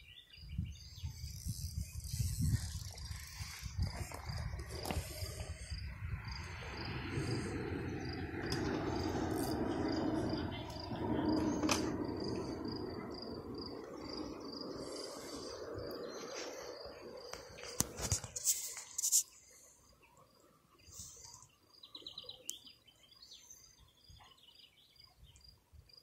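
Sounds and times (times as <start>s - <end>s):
cricket chirping: 0.0s - 26.0s
low rushing noise: 1.7s - 18.0s.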